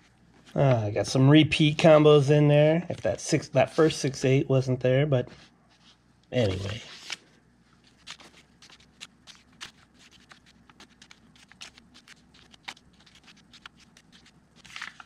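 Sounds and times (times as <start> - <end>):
paper bills rustling: 5.7 - 15.0.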